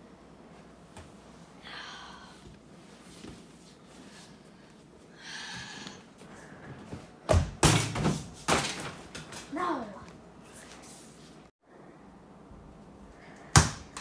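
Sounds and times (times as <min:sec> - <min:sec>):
basketball banging on backboard and rim: 0:07.3 - 0:09.0.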